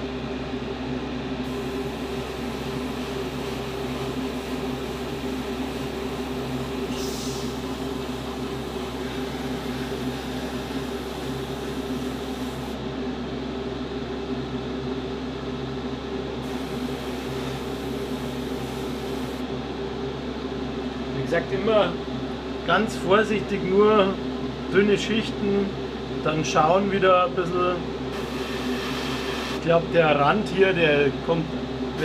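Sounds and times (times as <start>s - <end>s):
extraction fan humming: 0.0s - 32.0s.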